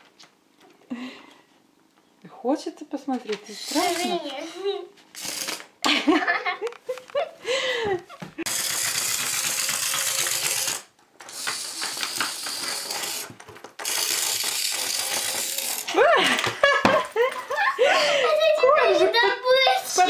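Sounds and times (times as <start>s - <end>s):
toy motor clicking rattle: 3.6s - 4.3s, 5.1s - 5.7s, 8.5s - 16.0s.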